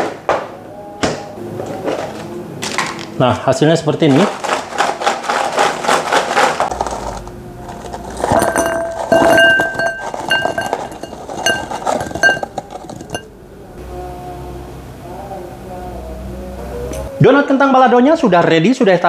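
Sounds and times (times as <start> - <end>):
quiet background music: 0.0 - 6.0, 6.6 - 19.0
fried snacks rattling in a bowl: 4.0 - 13.3.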